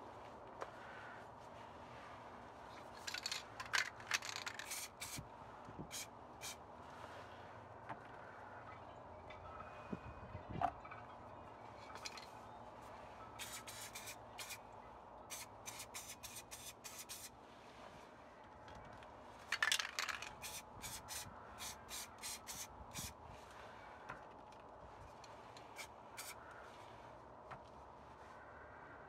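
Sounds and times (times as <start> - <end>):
spray paint can hissing: 4.2 - 5.2, 5.9 - 6.6, 13.4 - 14.6, 15.3 - 17.3, 20.2 - 23.1, 25.8 - 26.4.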